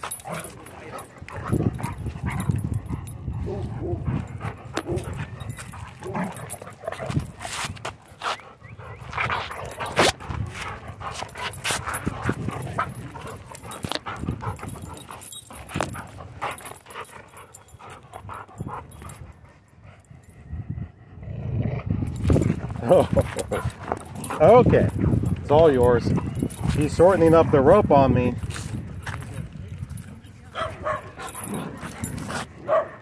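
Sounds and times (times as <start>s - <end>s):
clicks and rustles of tugging: 0.0s - 19.3s, 22.1s - 32.6s.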